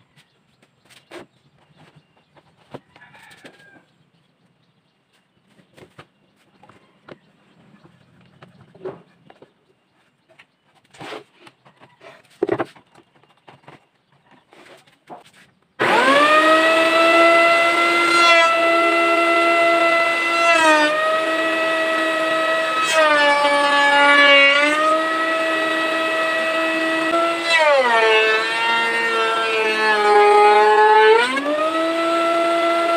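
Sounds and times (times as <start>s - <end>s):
electric motor whining: 15.8s - 32.9s.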